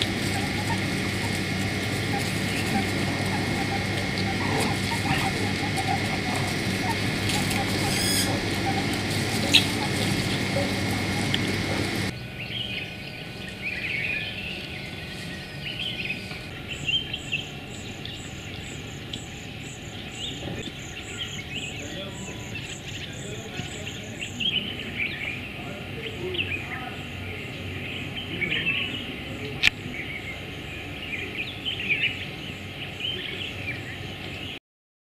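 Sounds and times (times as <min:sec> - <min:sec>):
high short animal call: 0:00.0 - 0:12.1
birds chirping: 0:00.0 - 0:34.6
steady low hum: 0:00.0 - 0:34.6.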